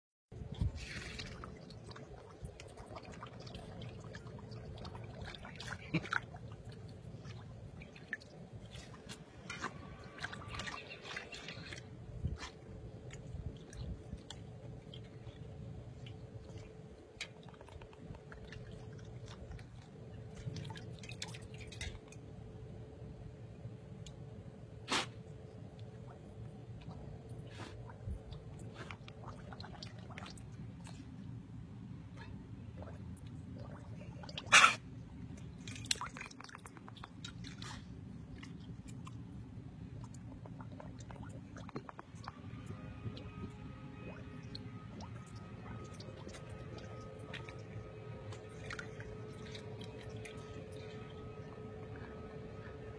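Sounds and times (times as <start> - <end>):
faint steady hum: 0.3 - 52.9
dog blowing bubbles in water: 0.4 - 22.0, 26.0 - 31.2, 32.2 - 52.9
dog splashing in metal water bowl: 0.5 - 22.2, 40.0 - 52.2.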